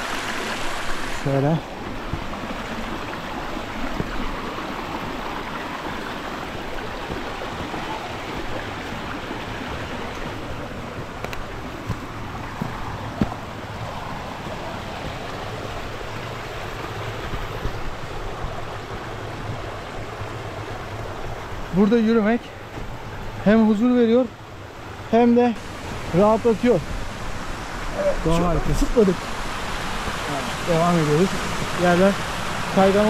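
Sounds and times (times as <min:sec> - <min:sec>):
stream water rushing: 0:00.0 - 0:33.0.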